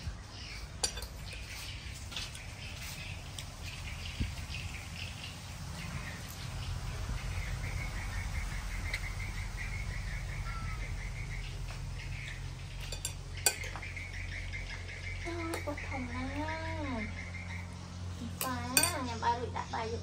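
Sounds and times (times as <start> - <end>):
low steady rumble: 0.0 - 20.0
small animal pulsing chirp: 7.1 - 12.5
spoon knocking ceramic plate: 18.8 - 19.0.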